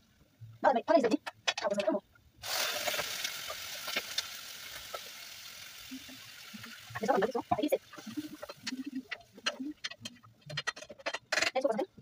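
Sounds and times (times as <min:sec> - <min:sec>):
food sizzling in hot oil: 0:02.4 - 0:10.1.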